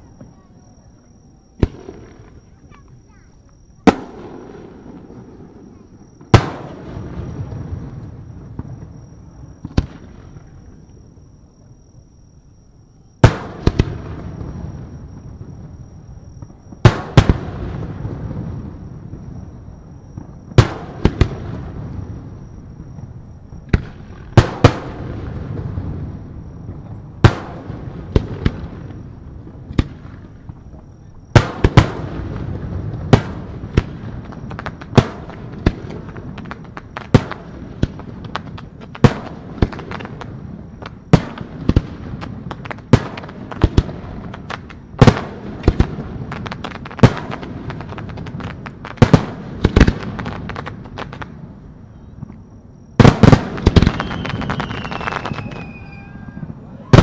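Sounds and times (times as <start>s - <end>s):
firework bangs: 0.0s - 10.8s, 13.2s - 57.0s
firework crackling: 13.2s - 51.6s, 53.0s - 57.0s
high falling whistle: 53.9s - 57.0s.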